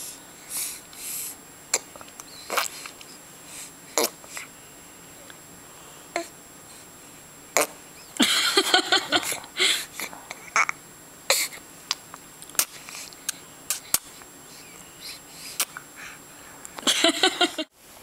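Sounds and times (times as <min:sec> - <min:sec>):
baby lip smacks and clicks: 0:11.9 - 0:14.2, 0:15.6 - 0:15.8.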